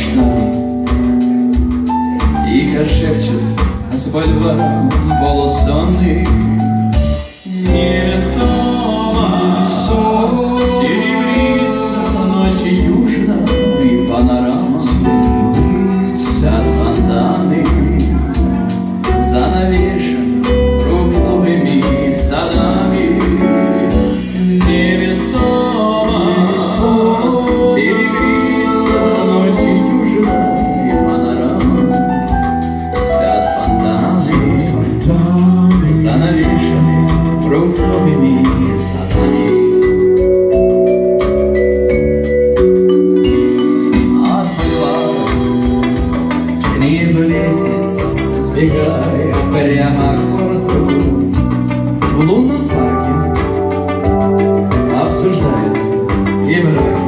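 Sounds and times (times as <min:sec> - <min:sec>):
bass guitar: 0:00.0 - 0:57.0
drums: 0:00.0 - 0:57.0
keyboard: 0:00.0 - 0:57.0
man singing: 0:00.0 - 0:57.0
electric guitar: 0:21.5 - 0:57.0.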